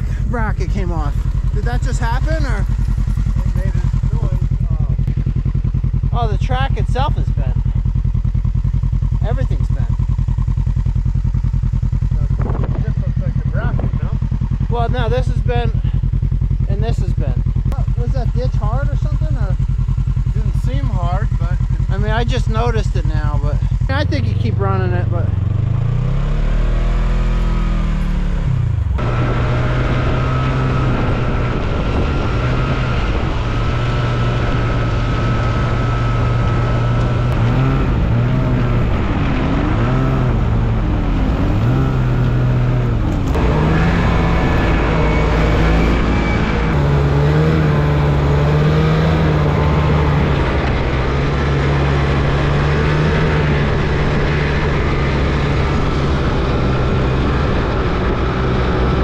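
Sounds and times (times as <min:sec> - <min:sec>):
utility vehicle engine under load: 0:00.0 - 0:59.0.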